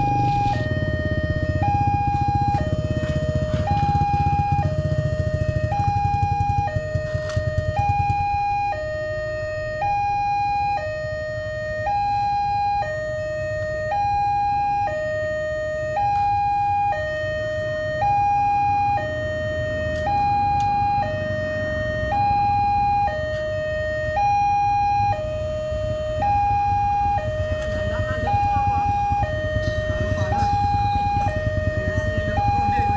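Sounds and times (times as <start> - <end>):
two-tone level-crossing siren: 0.0 - 32.9
low rumble: 26.8 - 32.9.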